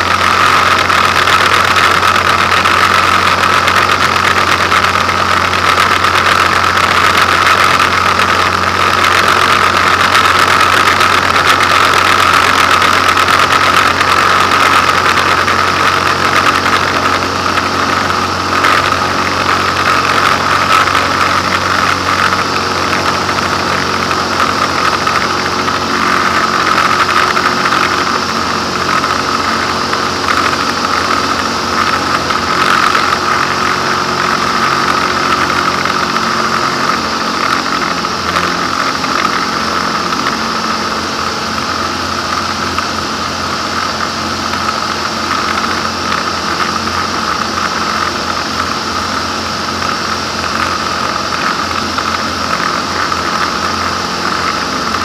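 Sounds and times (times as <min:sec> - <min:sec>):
aircraft engine and propeller: 0:00.0 - 0:55.0.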